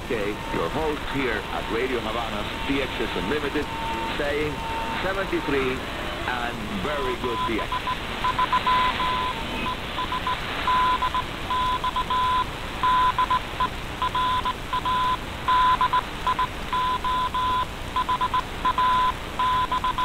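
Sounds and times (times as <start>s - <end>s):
shortwave radio hiss: 0.0s - 20.0s
morse code beeps: 6.3s - 20.0s.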